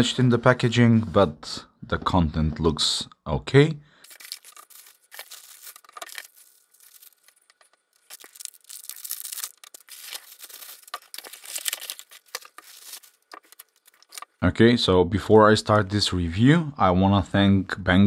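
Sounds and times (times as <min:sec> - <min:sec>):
plastic bags crinkling: 0:04.0 - 0:14.4.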